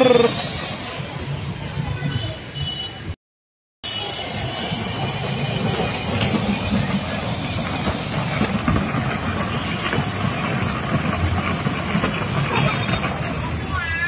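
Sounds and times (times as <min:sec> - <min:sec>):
toy car rumbling over paving: 0:04.0 - 0:13.8.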